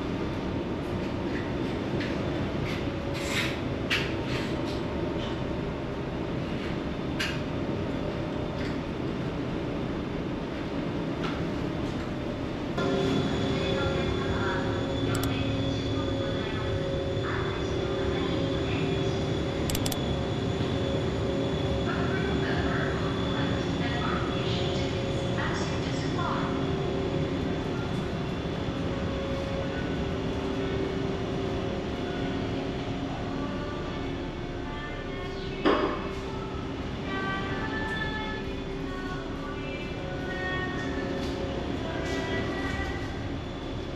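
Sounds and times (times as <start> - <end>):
ship engine rumble and hum: 0.0 - 43.9
sharp click: 19.7 - 20.0.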